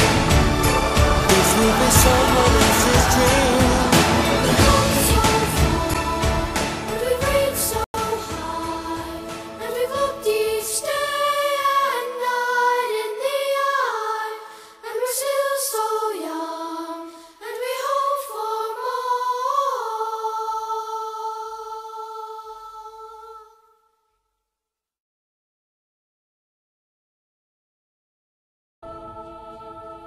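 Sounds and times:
low musical backing: 0.0s - 9.9s
person singing wordless melody: 0.0s - 23.6s.

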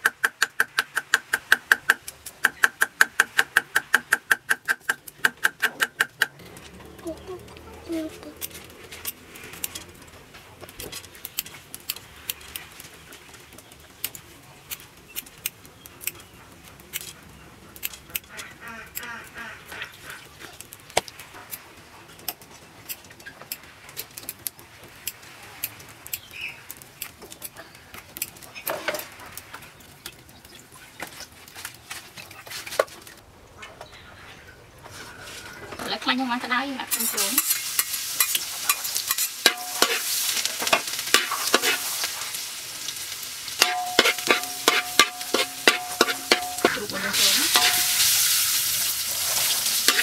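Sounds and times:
bowls and utensils clicking: 43.6s - 48.1s.

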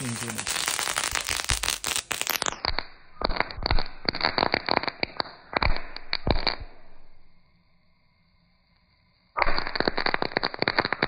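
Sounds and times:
crackle sticks crackling and popping: 0.0s - 6.8s, 9.4s - 11.0s.

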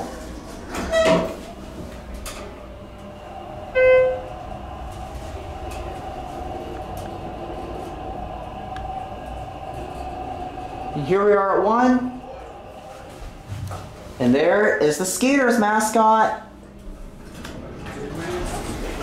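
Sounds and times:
elevator humming: 0.0s - 19.0s
elevator chime: 3.7s - 4.4s.

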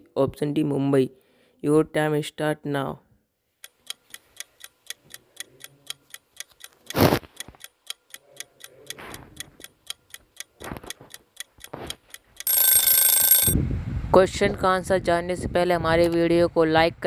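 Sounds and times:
clock ticking: 3.6s - 13.6s.

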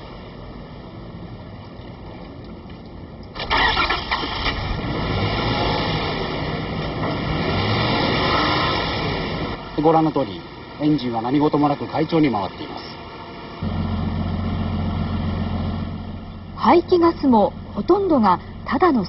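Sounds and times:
engine starter cranking: 3.3s - 4.8s
engine idling: 9.4s - 19.0s.

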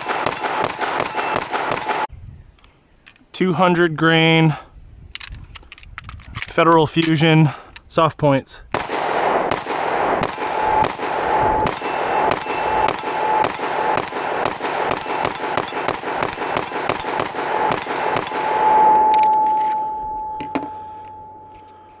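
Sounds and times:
pistol shots: 0.0s - 2.1s, 8.7s - 18.7s
steel targets ringing: 0.0s - 2.1s, 10.2s - 21.9s.

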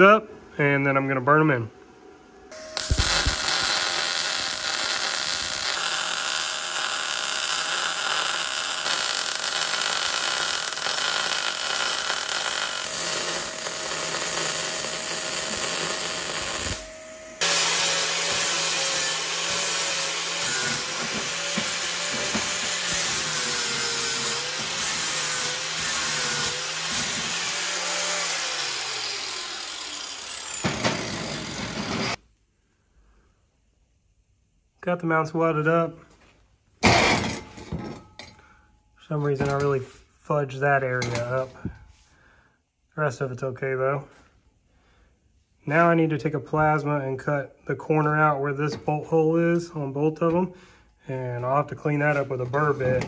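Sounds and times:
handheld power tool running: 2.5s - 32.2s.

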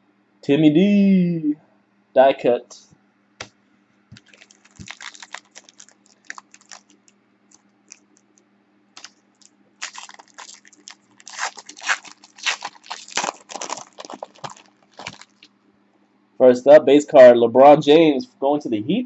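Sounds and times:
plastic wrapper crinkling: 4.2s - 8.4s, 9.0s - 15.5s.

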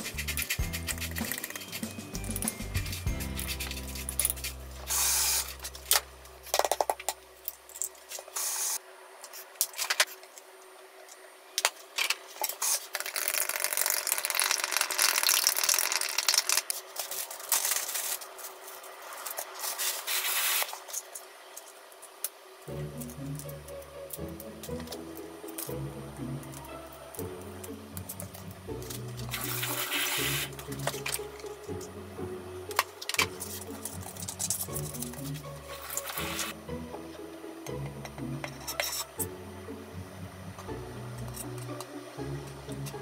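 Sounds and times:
chopsticks beating eggs in glass bowl: 0.0s - 4.6s.

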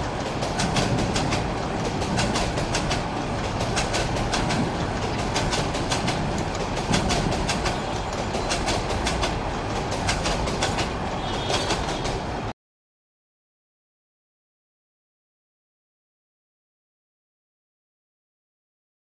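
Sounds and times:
wheels clattering over rail joints: 0.0s - 12.4s
train rumble: 0.0s - 12.5s.

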